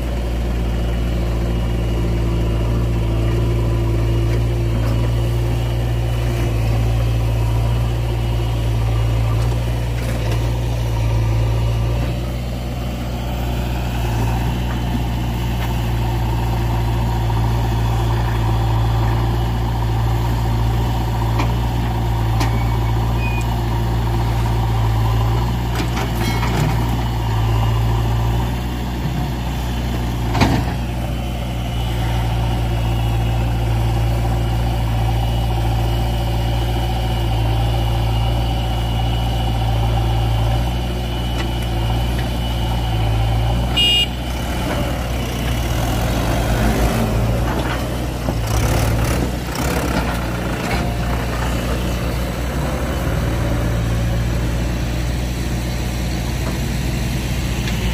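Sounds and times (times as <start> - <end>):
tractor diesel engine running: 0.0 - 57.9.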